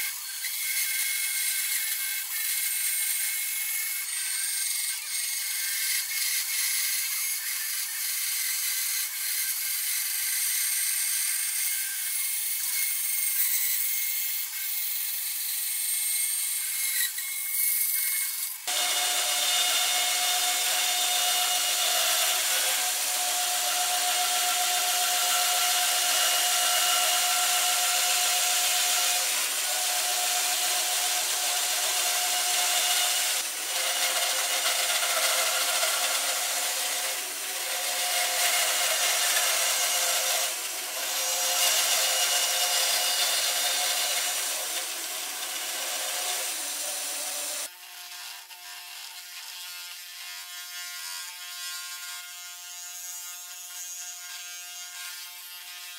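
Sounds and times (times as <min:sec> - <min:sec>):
saw blade rasping through wood: 0:00.0 - 0:47.7
bandsaw motor whine: 0:18.6 - 0:47.7.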